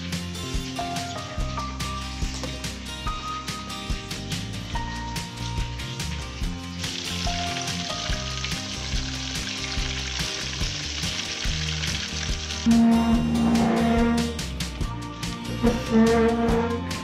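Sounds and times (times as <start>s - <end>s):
fish deep-frying in oil: 0.0s - 13.2s
background music: 0.0s - 17.0s.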